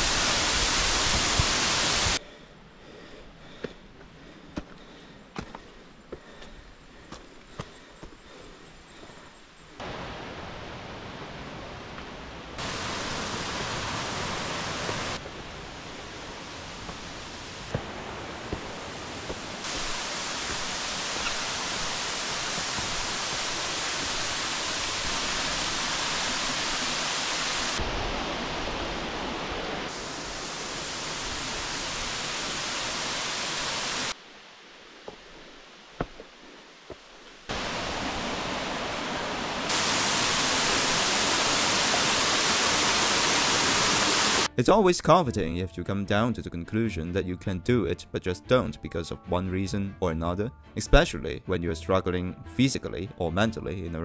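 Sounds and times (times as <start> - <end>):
waterfall rushing: 0.0 - 2.2, 9.8 - 44.5.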